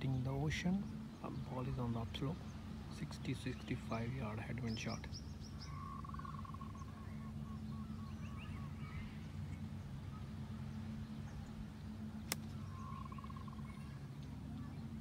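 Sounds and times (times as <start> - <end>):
birds chirping: 0.0 - 15.0
low hum: 0.0 - 15.0
golf club striking ball: 12.2 - 12.8.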